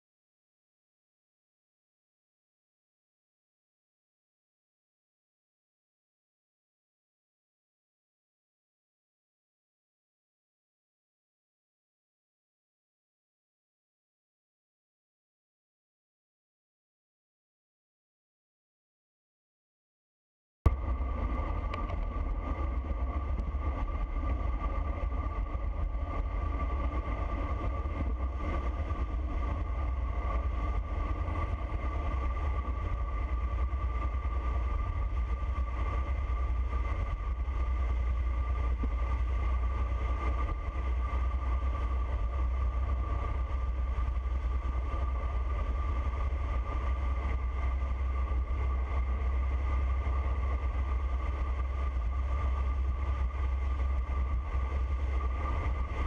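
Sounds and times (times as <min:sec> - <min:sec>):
thin steady whine: 0:20.7 - 0:56.0
wind rushing over microphone: 0:20.7 - 0:56.0.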